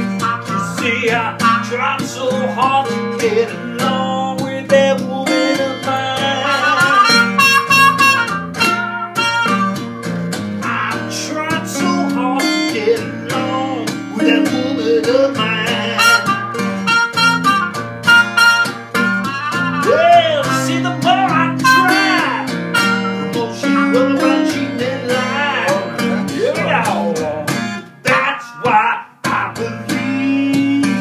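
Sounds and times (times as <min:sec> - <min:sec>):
man singing: 0:00.0 - 0:08.3, 0:10.6 - 0:17.3, 0:19.8 - 0:31.0
acoustic guitar strummed and picked: 0:00.0 - 0:31.0
trumpet playing lead lines: 0:00.1 - 0:02.0, 0:05.2 - 0:10.0, 0:14.2 - 0:26.1.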